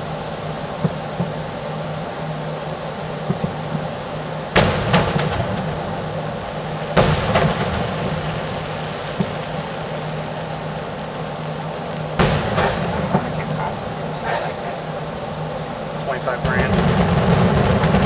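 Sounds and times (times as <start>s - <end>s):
steady low hum: 0.0s - 18.0s
firework shells booming: 4.5s - 10.8s, 12.0s - 15.4s, 16.0s - 18.0s
softer firework reports: 12.2s - 18.0s.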